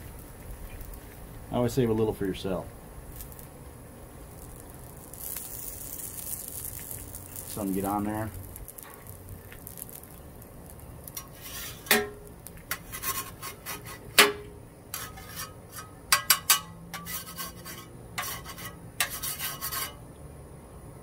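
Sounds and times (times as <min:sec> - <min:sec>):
spatulas rasping scrapes: 0:11.2 - 0:12.0, 0:12.7 - 0:14.1, 0:14.9 - 0:20.0.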